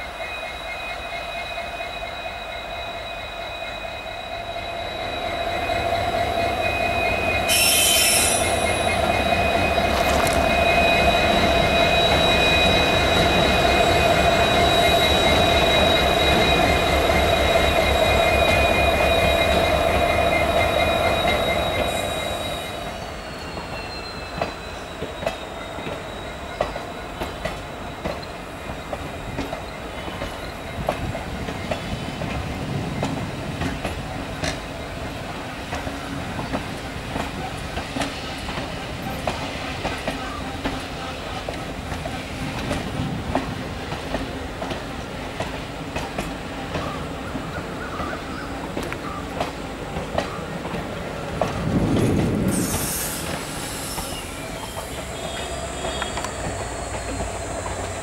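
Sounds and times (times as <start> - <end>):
diesel locomotive engine rumble: 0.0 - 58.0
faint wheel squeal: 0.5 - 30.7, 52.5 - 58.0
air hiss: 7.5 - 8.7, 52.5 - 58.0.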